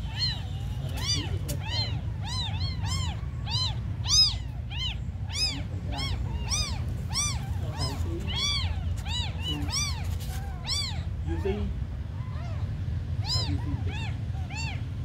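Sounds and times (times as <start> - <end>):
kittens mewing: 0.0 - 15.0
low steady rumble: 0.0 - 15.0.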